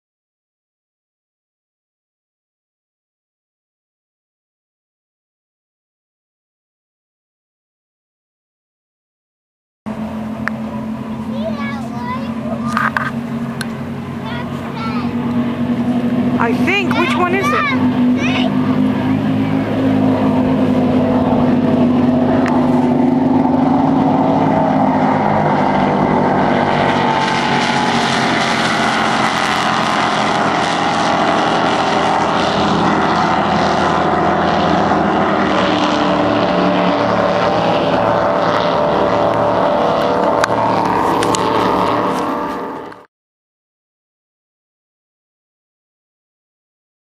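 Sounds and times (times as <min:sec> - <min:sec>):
powerboat engines droning: 0:09.9 - 0:43.1
rush of water: 0:09.9 - 0:43.1.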